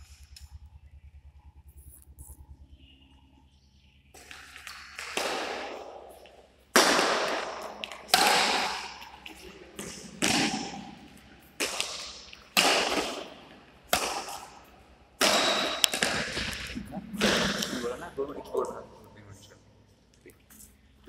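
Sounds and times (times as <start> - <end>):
rackets hitting shuttlecock: 4.2 - 17.9.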